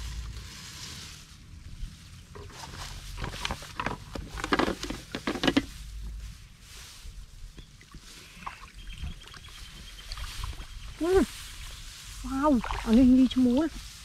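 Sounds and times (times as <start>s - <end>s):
low steady rumble: 0.0s - 7.6s
plants rustling and crackling: 0.0s - 14.0s.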